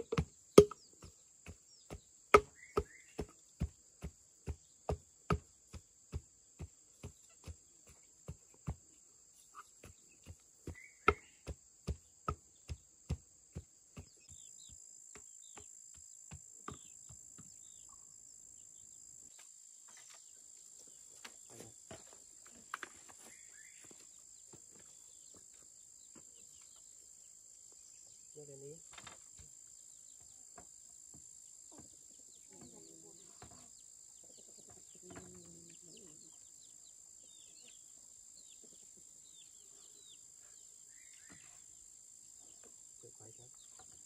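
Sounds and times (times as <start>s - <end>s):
insects droning: 0.0s - 44.0s.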